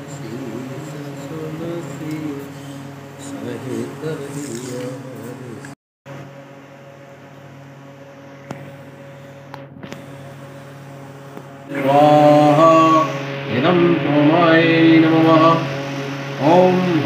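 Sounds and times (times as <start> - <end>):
person chanting: 0.0 - 2.5, 3.2 - 5.8, 11.7 - 15.7, 16.4 - 17.0
steady drone: 0.0 - 17.0.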